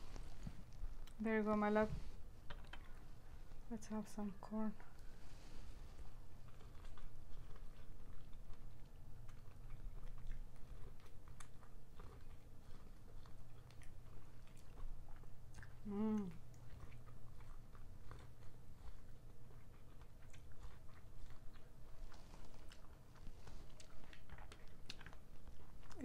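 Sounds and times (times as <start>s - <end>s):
chewing corn on the cob: 0.0s - 26.0s
person humming: 15.8s - 16.4s.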